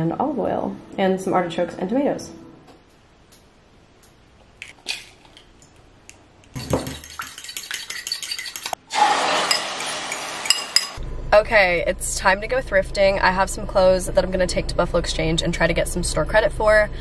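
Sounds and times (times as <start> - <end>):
egg cracking on bowl: 4.6 - 8.8
fork whisking in bowl: 6.5 - 8.8
egg sizzling in frying pan: 6.6 - 11.0.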